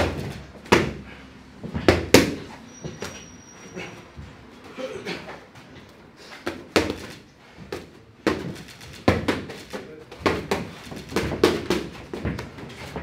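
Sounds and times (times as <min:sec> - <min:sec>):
boxing gloves hitting mitts: 0:00.0 - 0:03.2, 0:05.8 - 0:13.0.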